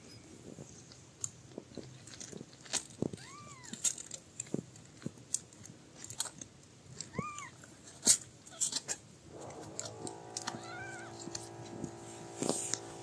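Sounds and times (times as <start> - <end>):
kittens nursing clicks and smacks: 0.5 - 11.9
steady held tone: 9.3 - 13.0
kitten mewing: 10.2 - 12.4.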